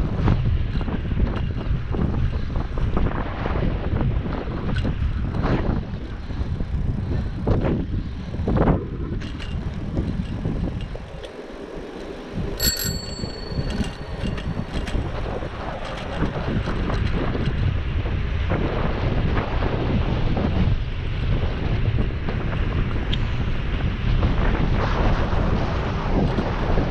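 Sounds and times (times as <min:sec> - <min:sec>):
wind on microphone: 0:00.0 - 0:26.9
bicycle bell ringing: 0:11.4 - 0:15.5.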